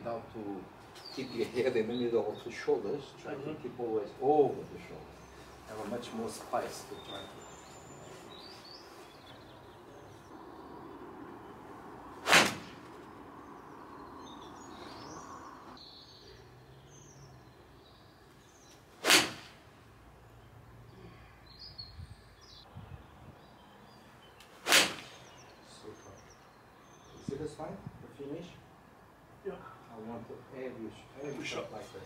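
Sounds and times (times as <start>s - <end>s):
faint bird chirps: 12.9s - 18.8s, 20.2s - 27.6s.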